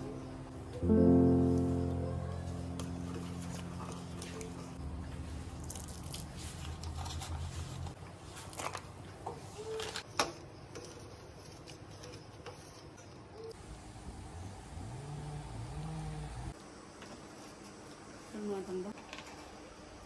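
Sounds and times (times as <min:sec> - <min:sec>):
low steady hum: 0:00.0 - 0:08.0.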